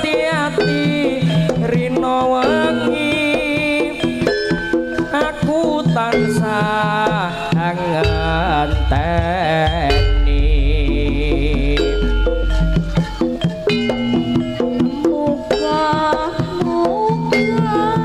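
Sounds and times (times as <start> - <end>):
hand drumming: 0.0 - 18.0
ornamented melody line: 0.0 - 18.0
deep bass: 8.0 - 13.8.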